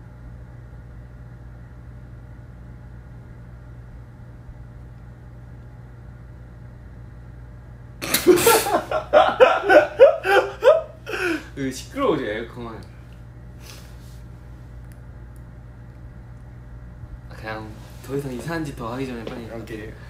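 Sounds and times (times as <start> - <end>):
air conditioner humming: 0.0 - 20.0
laughter and voices: 8.0 - 11.5.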